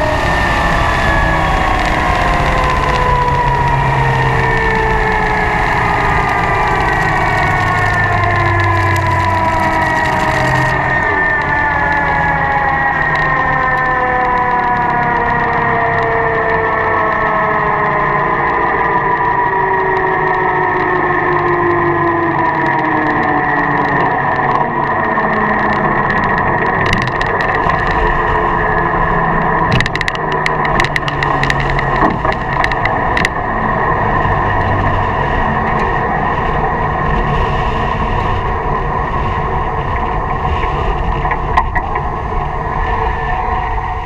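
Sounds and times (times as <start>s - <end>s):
dragster engine drone: 0.0s - 44.0s
sharp rattling clicks: 25.6s - 28.3s, 29.6s - 33.4s.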